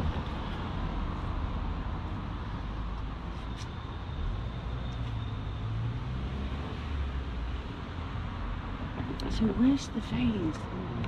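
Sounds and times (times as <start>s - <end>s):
passing vehicle rumble: 4.1s - 11.0s.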